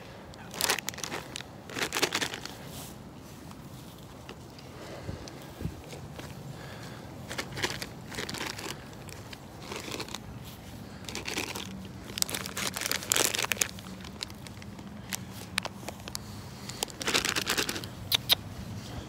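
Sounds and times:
footsteps crunching through leaves: 5.7s - 17.9s.

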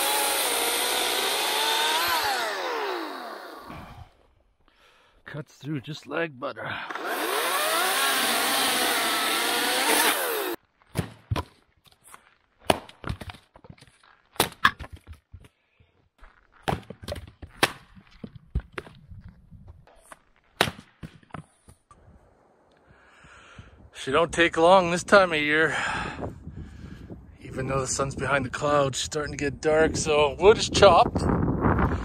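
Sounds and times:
electric chainsaw cutting wood: 0.0s - 3.9s, 6.9s - 10.6s.

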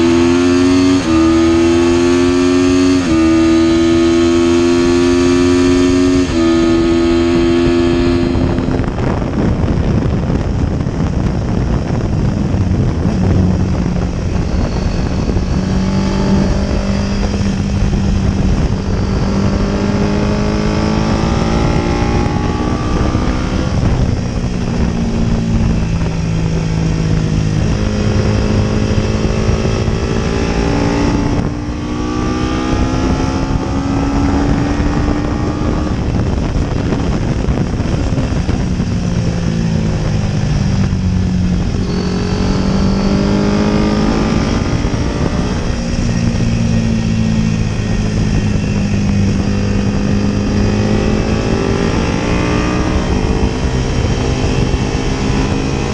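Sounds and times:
racing motorcycle engine revving: 0.0s - 55.9s
wind rush: 0.0s - 55.9s.

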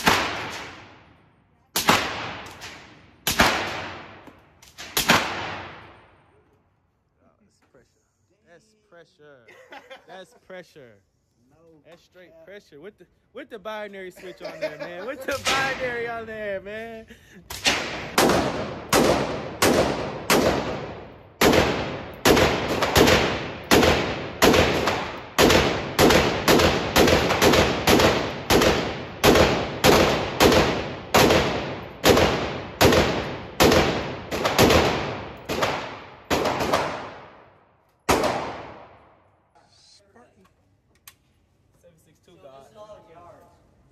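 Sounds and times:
rapid gunshots with ringing echo: 0.0s - 1.0s, 1.8s - 4.2s, 17.5s - 37.5s, 38.1s - 39.0s.

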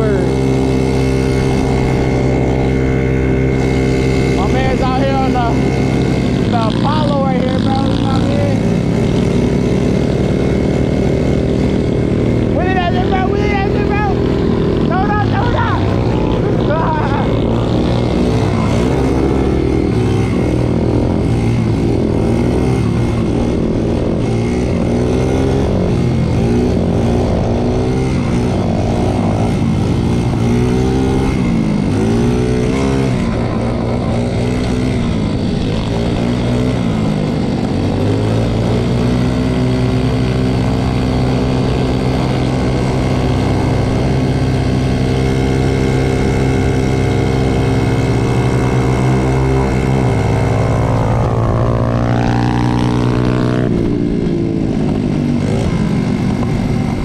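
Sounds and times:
moped engine running: 0.0s - 57.0s.

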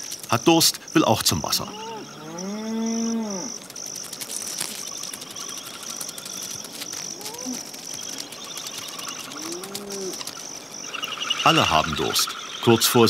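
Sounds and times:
crickets chirping: 0.0s - 13.0s
cow mooing: 1.7s - 3.5s.

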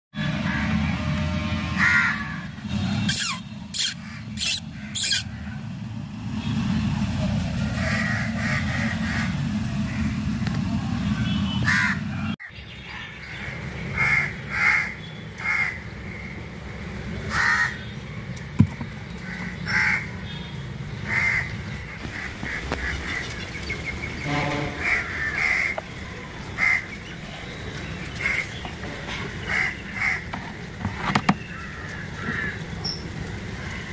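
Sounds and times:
harsh animal calls: 3.1s - 5.7s.

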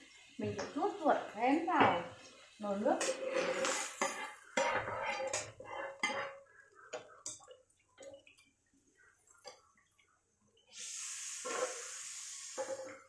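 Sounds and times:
utensils scraping frying pan: 2.0s - 7.4s, 11.2s - 13.0s.

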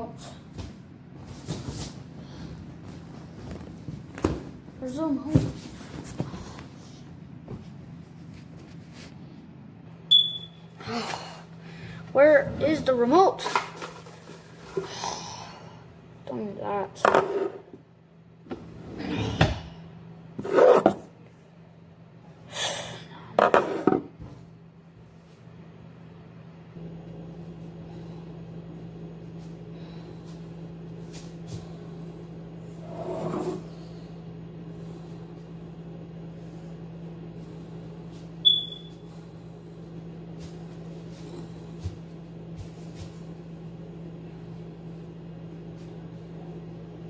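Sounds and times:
steady low hum: 0.0s - 47.0s
short high beep: 10.1s - 10.6s, 38.4s - 39.0s.

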